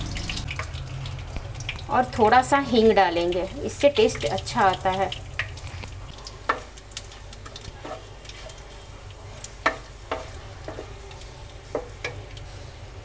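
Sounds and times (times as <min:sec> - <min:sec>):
spices sizzling in hot oil: 0:00.0 - 0:13.0
spatula scraping against pan: 0:07.4 - 0:12.7.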